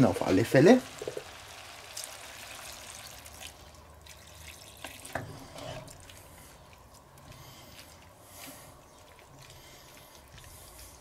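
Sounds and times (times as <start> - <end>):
water pouring onto food in pot: 0.8 - 5.2
pot stirring knocks: 1.0 - 1.3.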